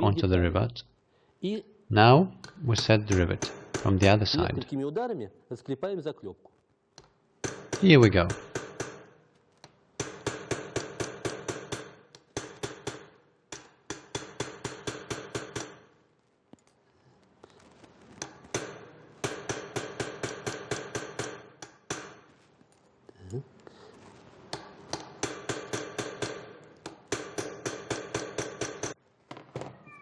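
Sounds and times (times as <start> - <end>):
hammer striking metal rivet tool: 2.4 - 4.2, 7.4 - 9.2, 10.0 - 15.9, 18.2 - 22.3, 24.5 - 29.0.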